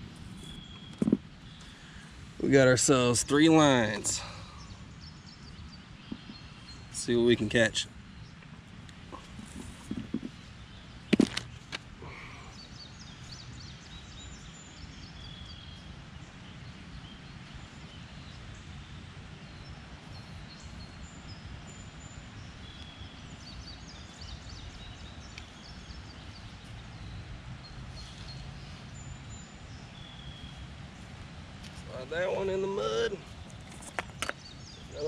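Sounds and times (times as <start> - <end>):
songbirds chirping: 0.0 - 35.0
sharp knocks: 11.1 - 11.5.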